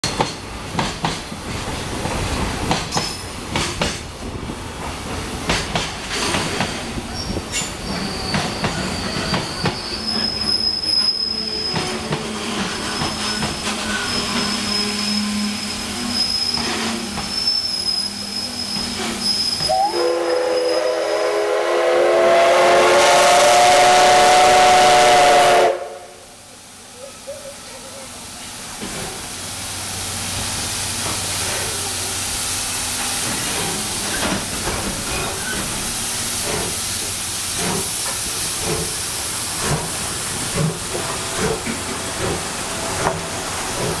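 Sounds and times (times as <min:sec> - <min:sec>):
freight train rolling past: 0:00.0 - 0:44.0
steam hiss: 0:00.1 - 0:44.0
wheel squeal: 0:07.1 - 0:20.8, 0:35.0 - 0:35.8
steam locomotive whistle: 0:07.8 - 0:26.4.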